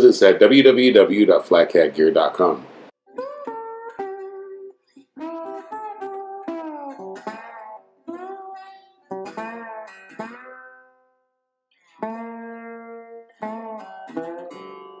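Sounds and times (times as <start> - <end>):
plucked string music: 3.0 - 15.0.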